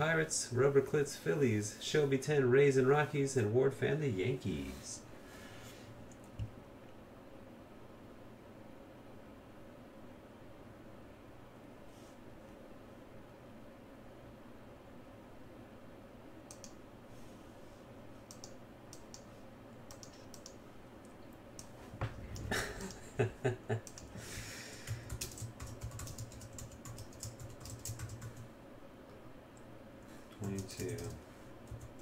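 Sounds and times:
computer keyboard typing: 0:16.5 - 0:16.8, 0:18.3 - 0:19.2, 0:19.9 - 0:20.6, 0:23.8 - 0:24.2, 0:24.8 - 0:28.5, 0:30.4 - 0:32.0.

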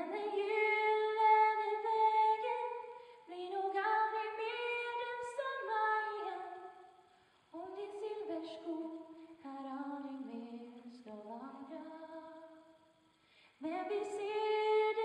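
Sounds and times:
woman singing unaccompanied: 0:00.0 - 0:06.6, 0:07.5 - 0:12.6, 0:13.6 - 0:15.0.

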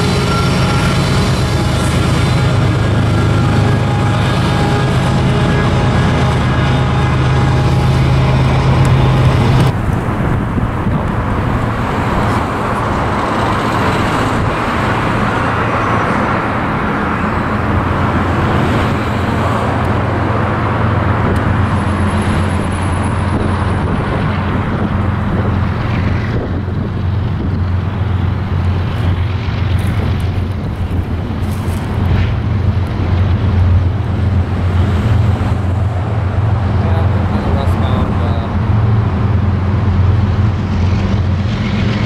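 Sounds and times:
highway traffic noise: 0:00.0 - 0:42.0
loud engine drone: 0:00.0 - 0:42.0
low engine hum: 0:00.0 - 0:42.0.

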